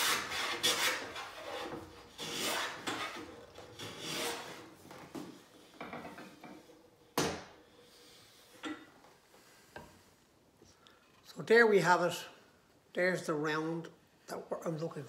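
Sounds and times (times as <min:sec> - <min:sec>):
hand plane shaving wood: 0:00.0 - 0:04.7
rubbing scrapes: 0:00.0 - 0:04.8.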